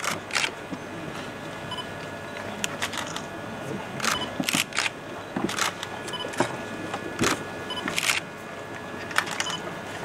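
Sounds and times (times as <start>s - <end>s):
camera shutters clicking: 7.9s - 8.2s.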